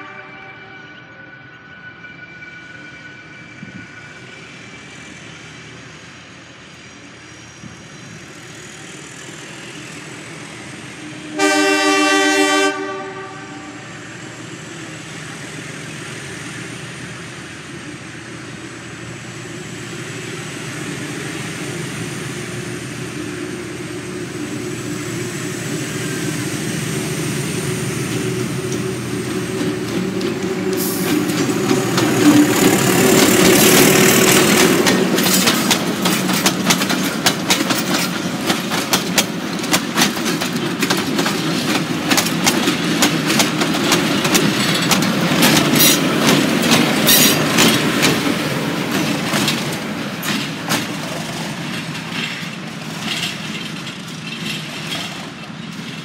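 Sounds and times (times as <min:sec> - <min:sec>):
locomotive horn blast: 0:00.0 - 0:01.4, 0:11.1 - 0:14.0
diesel locomotive engine rumbling: 0:00.0 - 0:56.0
train wheel clatter: 0:15.0 - 0:56.0.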